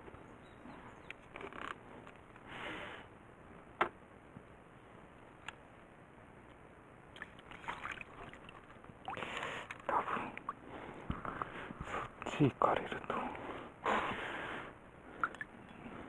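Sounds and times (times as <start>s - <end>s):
water sloshing and splashing: 7.1s - 10.6s.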